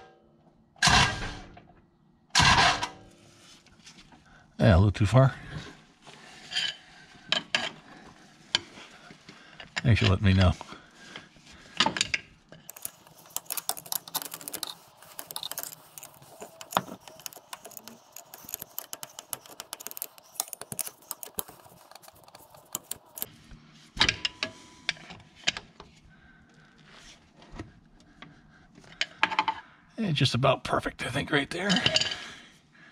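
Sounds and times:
metal clicks and rattles: 12.0 - 23.3.

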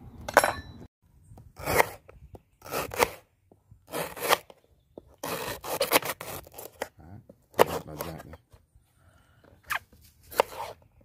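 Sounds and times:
knife cutting on wooden board: 9.7 - 10.8.

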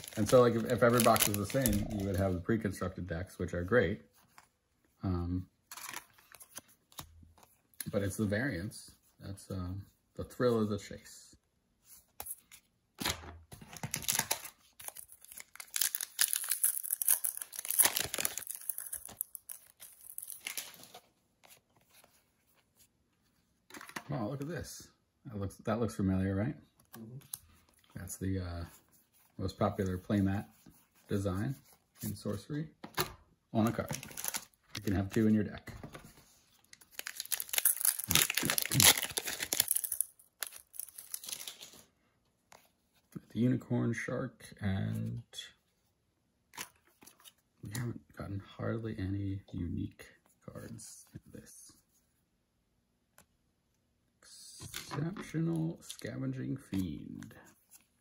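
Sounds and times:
foil wrapper tearing and crinkling: 0.0 - 2.2, 13.8 - 20.8, 33.9 - 34.5, 36.8 - 41.8.

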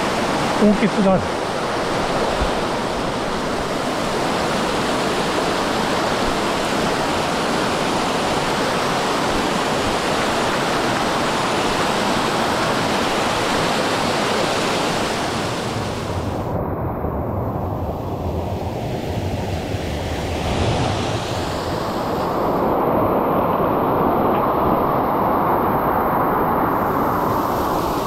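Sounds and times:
stream water rushing over rocks: 0.0 - 15.9.

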